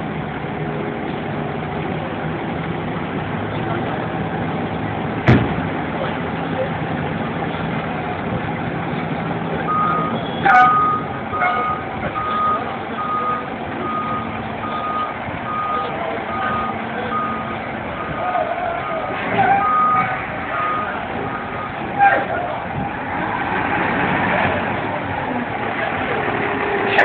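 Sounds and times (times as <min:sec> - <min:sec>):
diesel engine running: 0:00.0 - 0:27.0
reversing alarm beeping: 0:09.7 - 0:18.2, 0:18.8 - 0:21.8.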